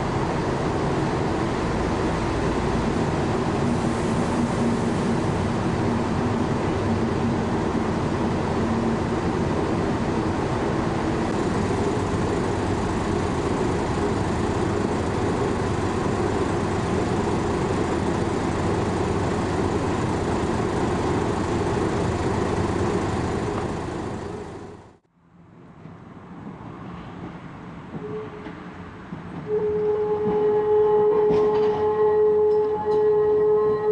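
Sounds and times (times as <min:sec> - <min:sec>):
diesel engine humming: 0:00.0 - 0:25.0.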